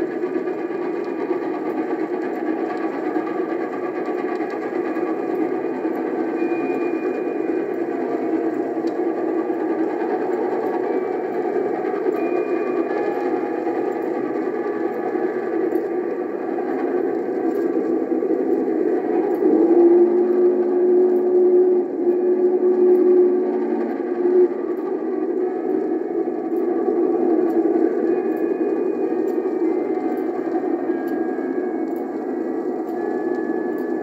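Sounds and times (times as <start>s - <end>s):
steam locomotive rumble: 0.0s - 34.0s.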